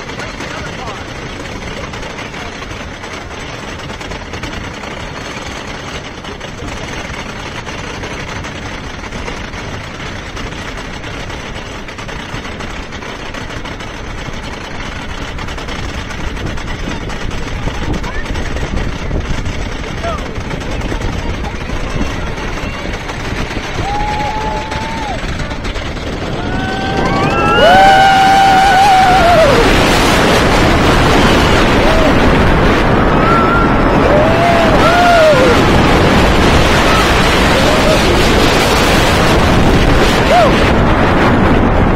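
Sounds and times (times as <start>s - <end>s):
roller coaster lift chain clattering: 0.0s - 41.9s
wind rushing on microphone: 0.0s - 41.9s
riders shouting: 23.6s - 30.2s, 31.6s - 39.4s, 40.0s - 40.8s.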